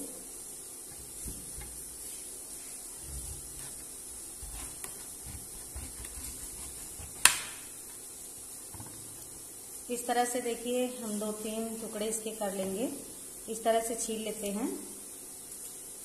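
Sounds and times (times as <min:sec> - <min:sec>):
knife scraping pumpkin rind: 0:03.0 - 0:08.0.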